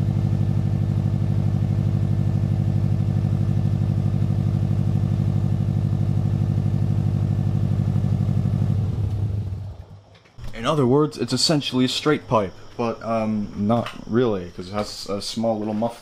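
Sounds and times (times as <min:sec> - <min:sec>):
car engine idling: 0:00.0 - 0:10.1.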